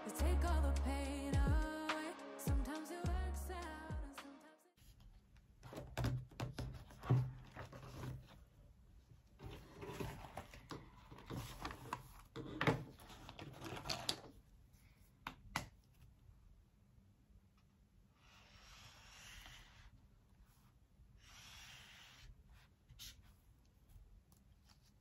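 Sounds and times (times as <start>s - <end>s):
pages rustling: 4.9s - 8.5s.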